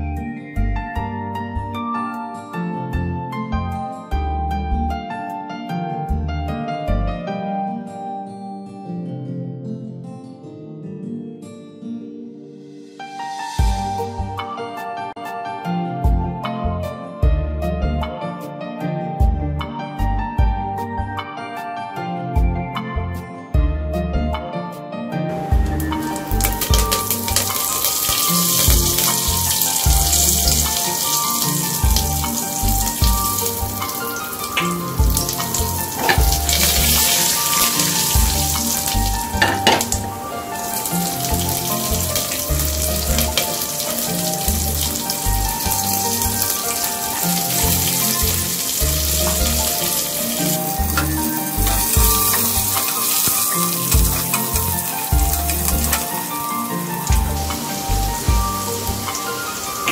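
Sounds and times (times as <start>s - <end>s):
background music: 0.0s - 59.9s
spices sizzling in hot ghee: 25.6s - 59.9s.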